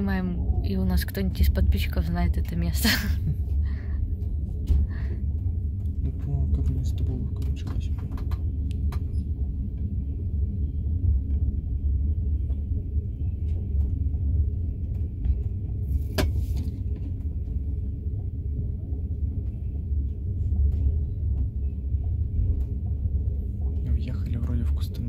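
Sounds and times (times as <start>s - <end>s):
train rumbling: 0.0s - 25.0s.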